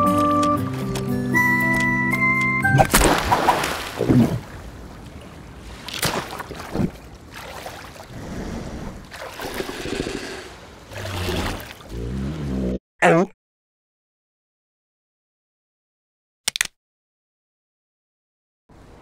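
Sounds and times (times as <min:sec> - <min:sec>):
cartoon water splashing: 0:02.7 - 0:04.4
gentle lapping water: 0:02.8 - 0:12.6.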